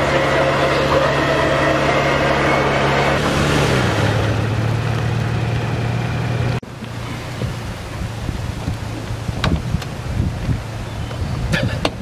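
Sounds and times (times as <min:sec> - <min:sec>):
electric winch humming: 0:00.0 - 0:04.7.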